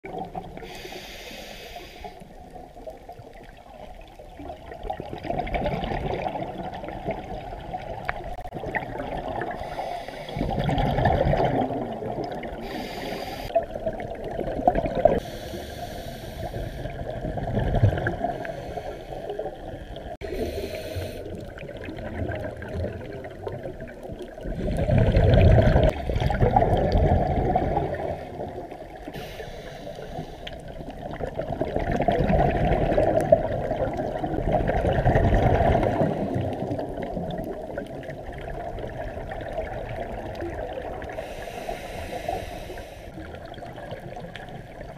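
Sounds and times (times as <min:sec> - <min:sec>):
exhaled bubbles gurgling underwater: 0:00.0 - 0:44.9
regulator inhale hiss: 0:00.6 - 0:02.4, 0:09.5 - 0:10.6, 0:12.6 - 0:13.6, 0:15.2 - 0:17.1, 0:18.3 - 0:19.6, 0:20.2 - 0:21.5, 0:28.2 - 0:30.8, 0:41.1 - 0:43.3.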